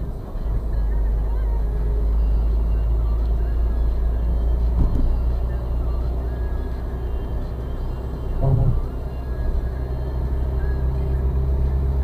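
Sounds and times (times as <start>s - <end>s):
tyres and engine rumble: 0.0s - 12.0s
brief thump: 4.8s - 5.1s, 8.4s - 8.8s.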